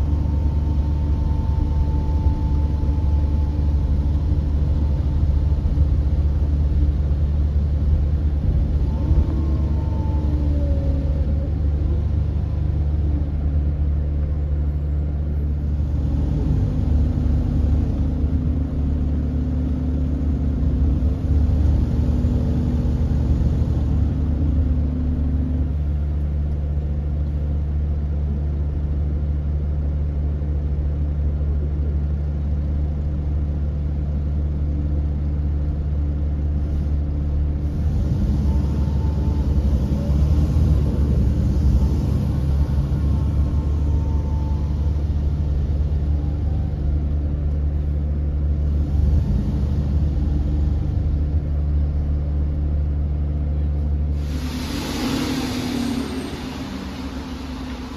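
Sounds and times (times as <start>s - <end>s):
higher tone shifting in pitch: 0.0s - 6.9s, 38.3s - 47.3s, 54.2s - 57.9s
coach diesel engine drone: 0.0s - 57.9s.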